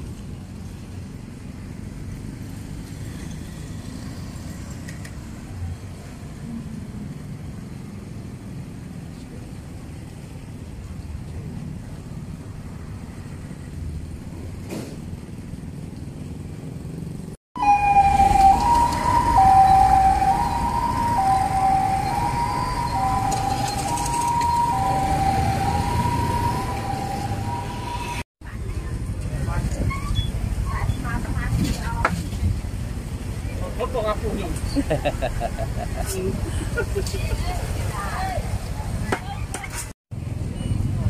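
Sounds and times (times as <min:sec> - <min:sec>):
street traffic rumble: 0:00.0 - 0:41.0
two-tone siren: 0:17.6 - 0:28.2.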